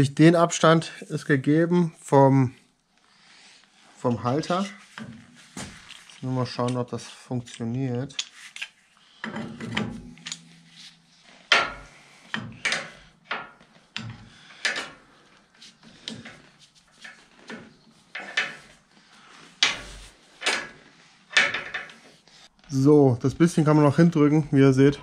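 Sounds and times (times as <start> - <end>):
knocks and clanks of metal pipe: 9.2 - 10.7, 11.5 - 15.0, 16.0 - 18.8, 19.6 - 22.0.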